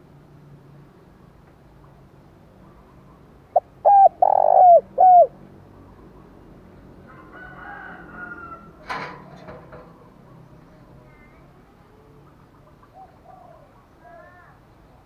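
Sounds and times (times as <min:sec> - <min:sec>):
dove cooing: 0:03.5 - 0:05.4, 0:12.9 - 0:13.9.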